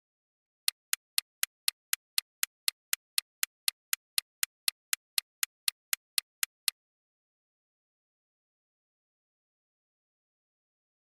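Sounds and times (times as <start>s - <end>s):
clock ticking: 0.7s - 6.8s.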